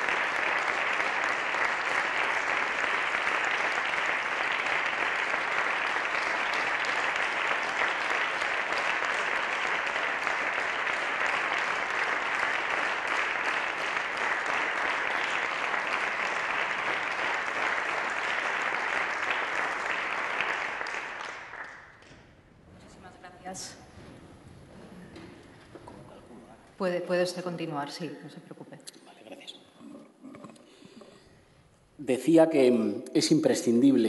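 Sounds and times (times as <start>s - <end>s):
group applause: 0.0s - 22.5s.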